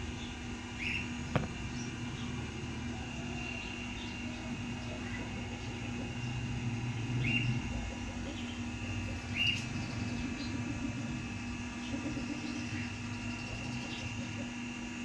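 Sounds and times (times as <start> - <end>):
low background hum: 0.0 - 15.0
bird chirps: 0.2 - 2.4, 7.2 - 7.6, 8.2 - 10.9.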